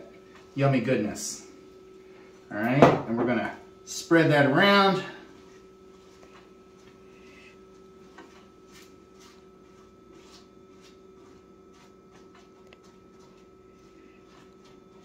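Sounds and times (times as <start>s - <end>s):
steady low hum: 0.0s - 15.0s
spatula scraping and rustling: 5.4s - 15.0s.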